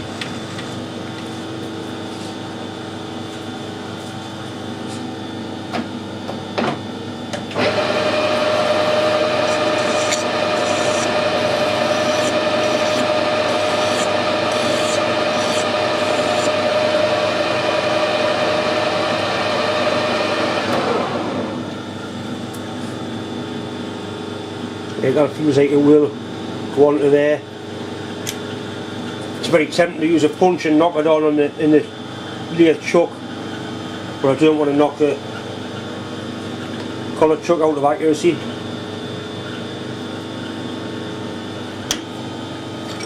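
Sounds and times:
metal lathe whining: 7.6s - 20.5s
hand file scratching on steel: 9.4s - 16.6s.

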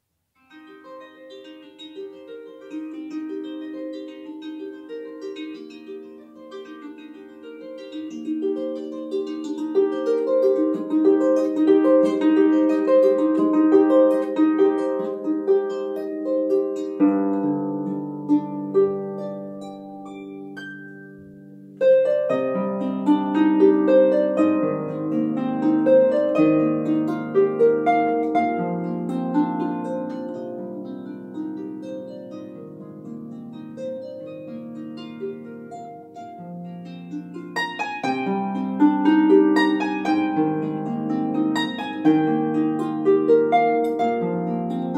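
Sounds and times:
solo harp plucked: 0.4s - 44.9s.

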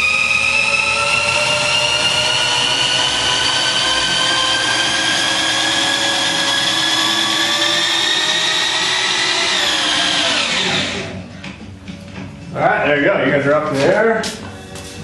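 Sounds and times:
electric drill motor whining: 0.0s - 11.3s.

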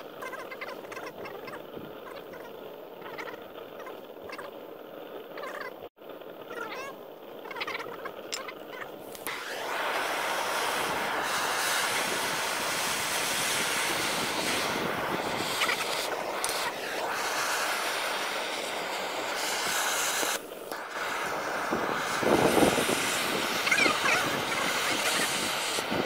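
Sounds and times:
gas torch hissing: 9.0s - 26.0s.

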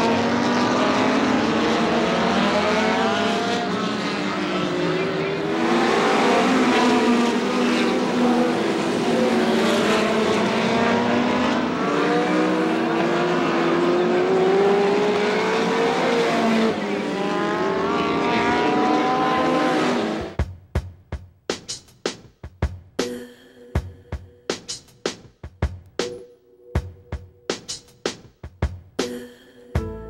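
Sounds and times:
race car engines passing: 0.0s - 20.4s
music with sharp drum beats: 20.2s - 26.2s, 26.8s - 30.0s.

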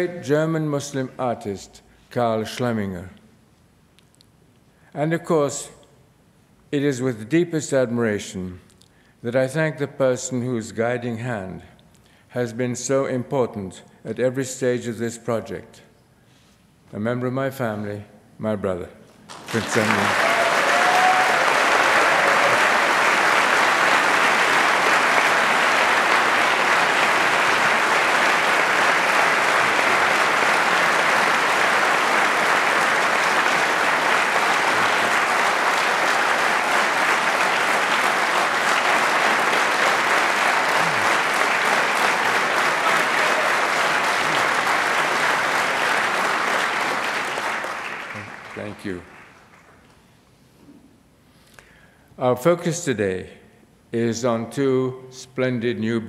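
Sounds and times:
audience applauding: 19.3s - 49.9s.

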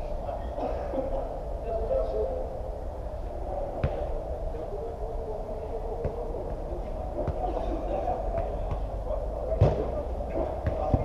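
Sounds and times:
ball being kicked: 9.5s - 9.9s.

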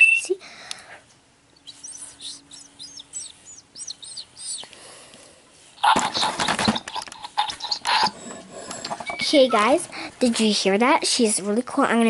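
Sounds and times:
electronic toy bird chirping: 1.6s - 4.7s, 5.8s - 8.1s
rustling and handling noise: 4.6s - 11.6s.

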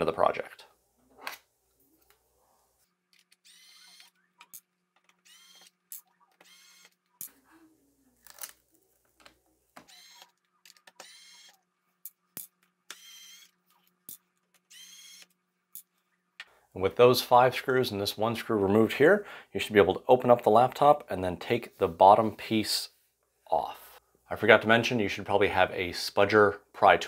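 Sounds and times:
electric screwdriver whirring: 3.3s - 7.0s, 9.8s - 11.6s, 12.9s - 13.6s, 14.6s - 15.4s.

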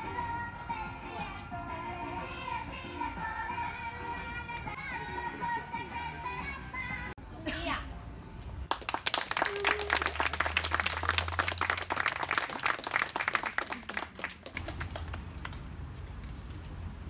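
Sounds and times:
group clapping: 8.7s - 15.7s.

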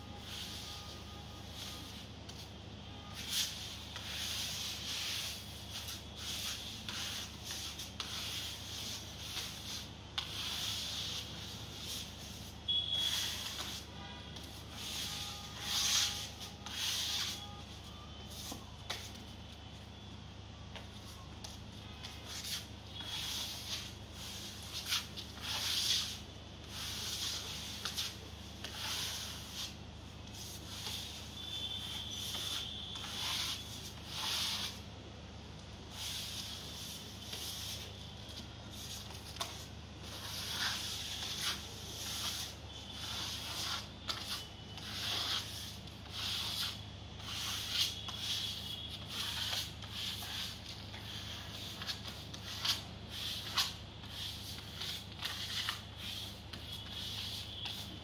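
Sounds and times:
trowel scraping wet plaster on wall: 22.3s - 29.7s, 39.4s - 57.8s.

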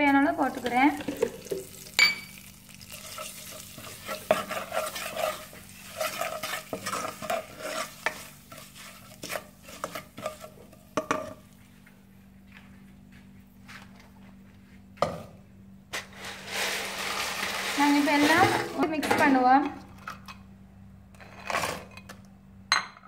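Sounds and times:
wooden spatula stirring in pan: 0.1s - 11.8s
spatula scraping and tapping pan: 0.4s - 2.1s, 2.9s - 11.6s.

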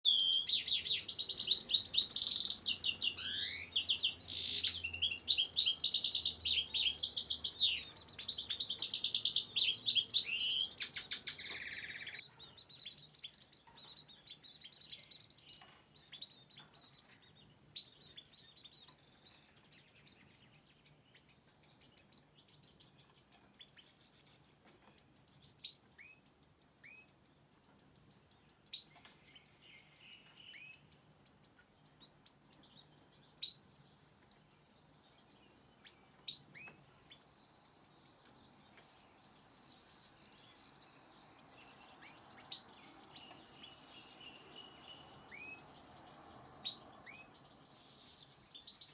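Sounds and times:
sharp falling bird calls: 0.0s - 27.2s
birds twittering song: 0.0s - 48.9s.

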